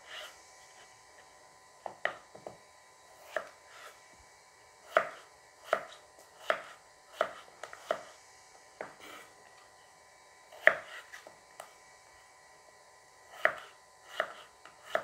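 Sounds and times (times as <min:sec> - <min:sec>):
knife chopping on wooden board: 0:01.8 - 0:02.6, 0:03.2 - 0:04.0, 0:04.9 - 0:08.2, 0:10.5 - 0:11.4, 0:13.3 - 0:15.0.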